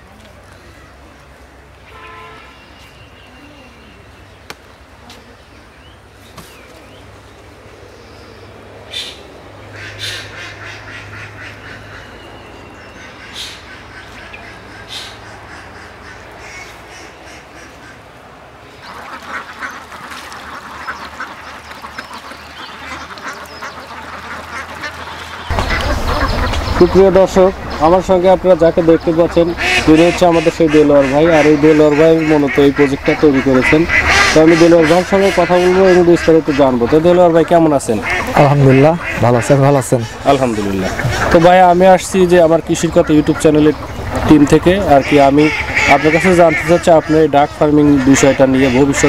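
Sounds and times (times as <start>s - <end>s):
short honk: 1.9s - 2.7s
ducks quacking: 8.9s - 49.0s.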